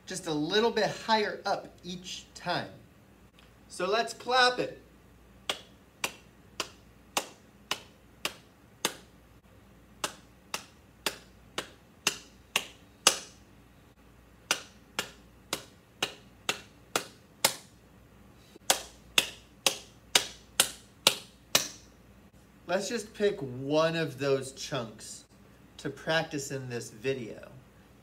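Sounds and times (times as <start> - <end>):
hands clapping a rhythm: 5.4 - 9.1, 10.0 - 13.4, 14.4 - 17.8, 18.6 - 21.9.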